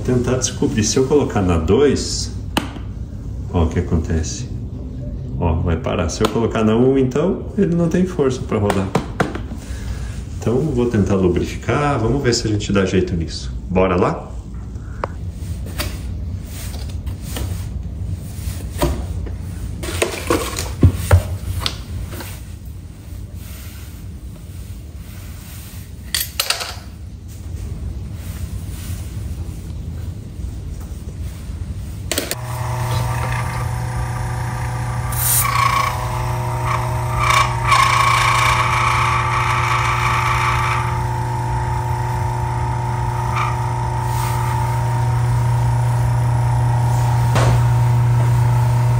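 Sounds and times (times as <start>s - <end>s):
fan motor humming: 32.1s - 48.9s
high whine with light knocks: 47.3s - 48.3s.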